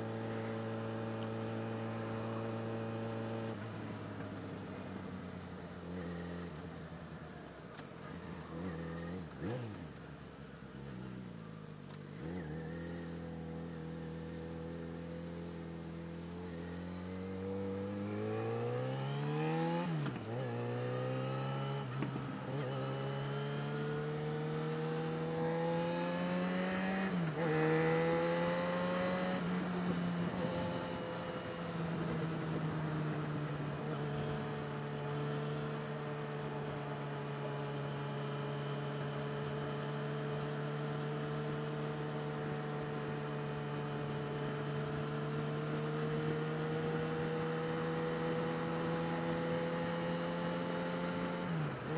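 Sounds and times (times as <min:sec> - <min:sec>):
motorcycle engine accelerating: 0:08.0 - 0:51.9.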